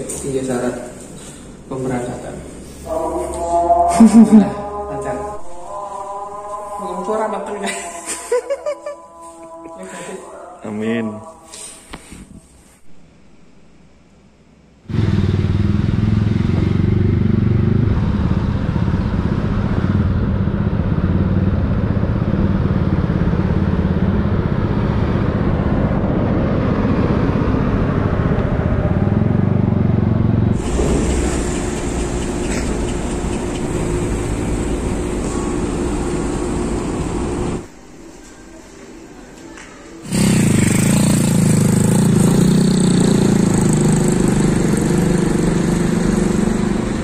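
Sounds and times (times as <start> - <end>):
vehicle engine rumbling: 14.9 - 37.8.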